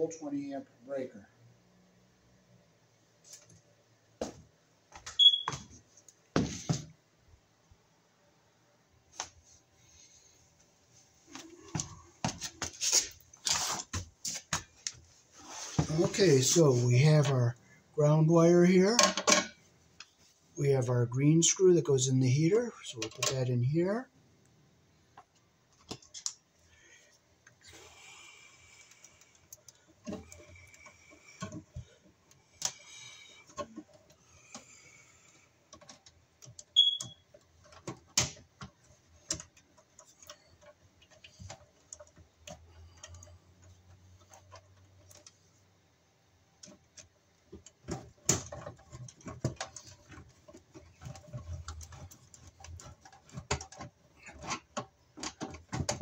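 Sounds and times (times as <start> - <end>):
hands working stiff wires: 11.2 - 17.4, 25.1 - 56.0.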